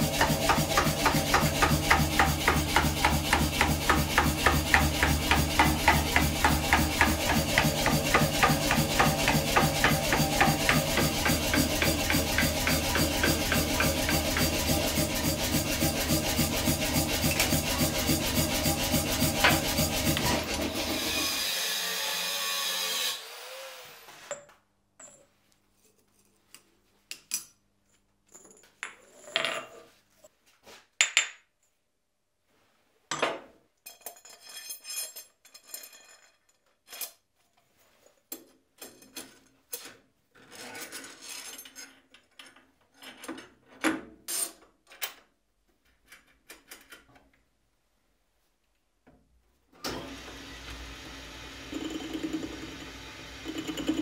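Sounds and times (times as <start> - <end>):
steady machine noise: 0.1 - 20.8
metal clinks and scrapes: 33.8 - 43.3.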